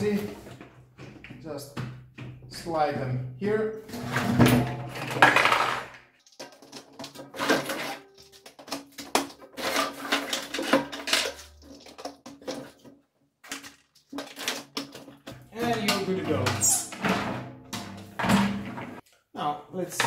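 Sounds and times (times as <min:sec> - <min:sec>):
plastic clattering against metal: 0:03.9 - 0:19.0.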